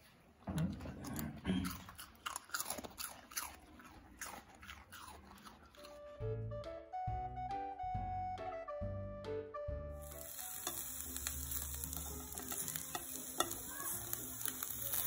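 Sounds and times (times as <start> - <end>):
dog crunching food: 0.8 - 6.0.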